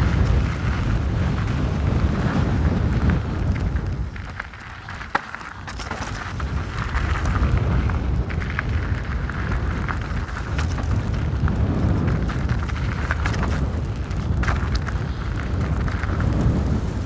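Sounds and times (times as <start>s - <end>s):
mountain bike rumbling and rattling: 0.0s - 17.0s
wind buffeting microphone: 0.0s - 17.0s.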